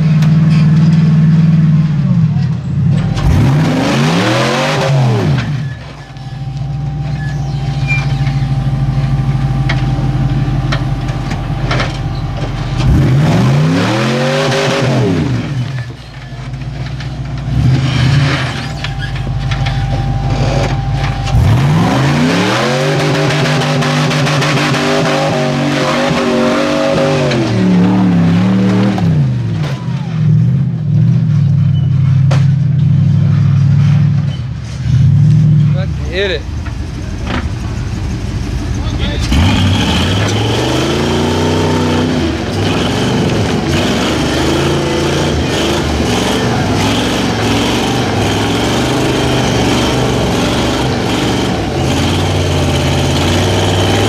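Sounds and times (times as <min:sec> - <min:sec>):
off-road engine revving: 0:00.0 - 0:54.0.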